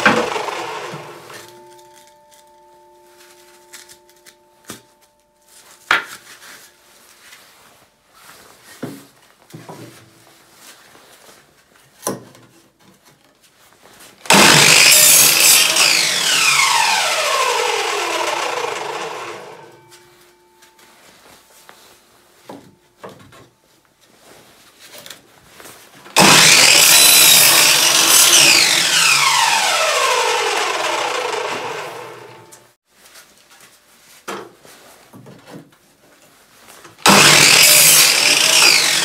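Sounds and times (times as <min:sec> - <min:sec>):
miter saw cutting wood: 0:00.0 - 0:02.1, 0:14.3 - 0:19.9, 0:26.2 - 0:32.7, 0:37.0 - 0:39.0
saw blade winding down whine: 0:00.0 - 0:02.1, 0:14.3 - 0:19.9, 0:26.2 - 0:32.6, 0:37.1 - 0:39.0.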